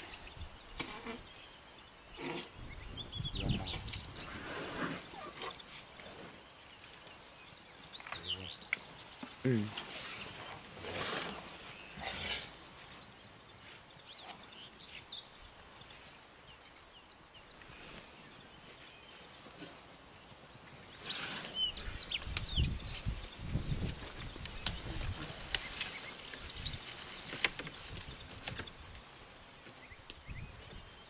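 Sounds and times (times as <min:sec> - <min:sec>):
birds chirping and whistling: 0:00.0 - 0:05.8, 0:20.6 - 0:28.8
steady outdoor hiss: 0:00.0 - 0:31.0
rustling noise: 0:17.8 - 0:29.7.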